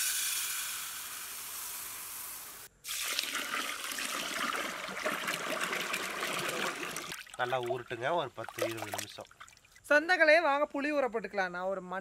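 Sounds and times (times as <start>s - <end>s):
water pouring and splashing: 2.8s - 9.9s
rice pouring into metal pot: 2.9s - 7.8s.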